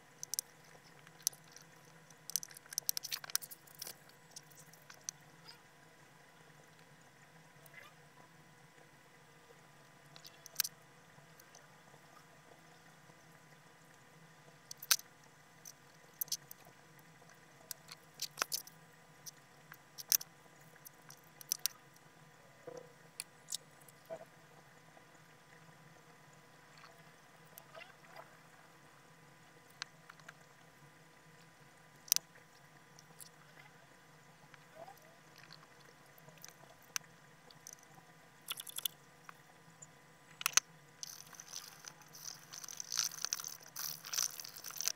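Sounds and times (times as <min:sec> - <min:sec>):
faint steady hum: 0:00.0 - 0:44.9
small clicks and taps of handling: 0:00.2 - 0:05.2, 0:19.3 - 0:21.8, 0:40.3 - 0:44.9.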